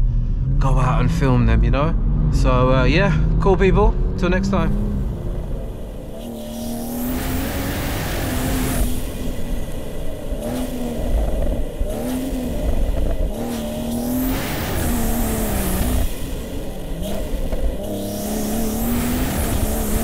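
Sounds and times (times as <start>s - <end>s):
car engine revving: 0.0s - 20.0s
rushing noise: 0.0s - 20.0s.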